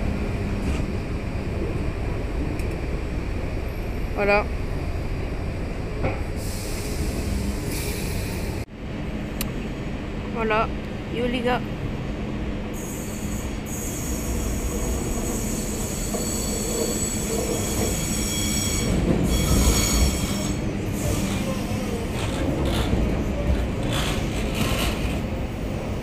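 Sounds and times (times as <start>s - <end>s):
train low rumble: 0.0s - 26.0s
train wheels squealing: 12.8s - 22.0s
wheels clicking over rails: 22.1s - 25.4s.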